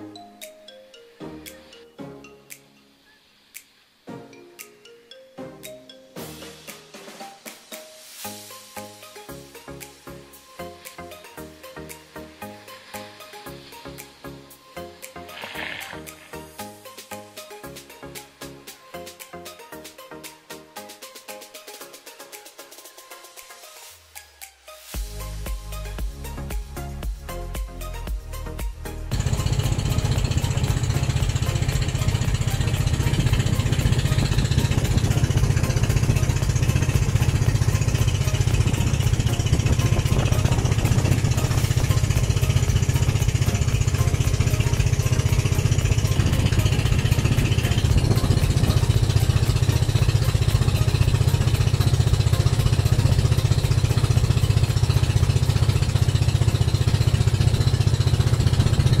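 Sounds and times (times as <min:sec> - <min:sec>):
boat engine droning: 0:29.1 - 0:59.0.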